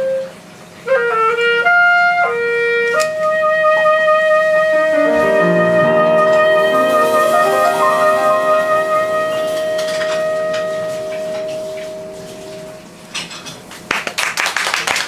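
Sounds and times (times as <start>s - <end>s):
clarinet long note: 0.9s - 13.0s
jazz band playing: 0.9s - 13.1s
ringing piano chord: 4.9s - 13.1s
applause: 13.7s - 15.0s.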